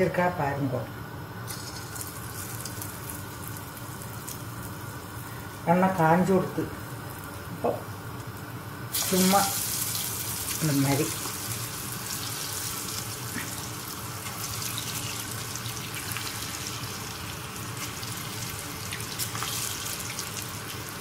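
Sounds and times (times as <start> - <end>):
batter deep-frying in hot oil: 1.4 - 21.0.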